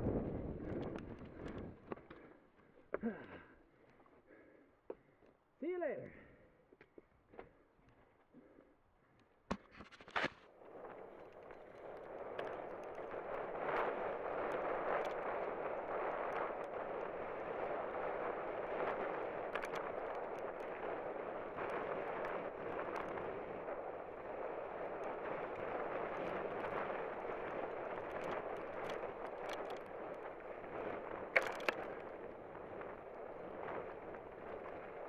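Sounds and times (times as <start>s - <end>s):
wind and tyre noise: 0.0s - 35.0s
bike clicks and rattles on rocks: 9.5s - 17.1s, 18.0s - 35.0s.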